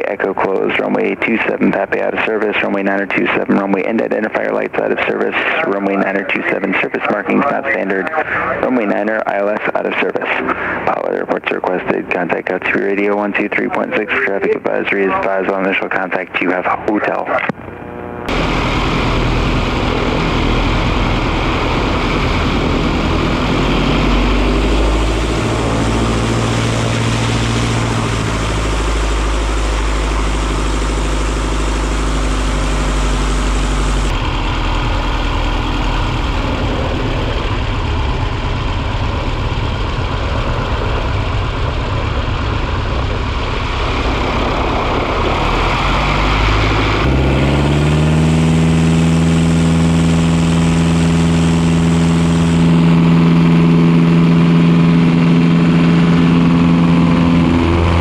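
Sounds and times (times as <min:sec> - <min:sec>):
light plane engine and propeller: 0:00.0 - 0:58.0.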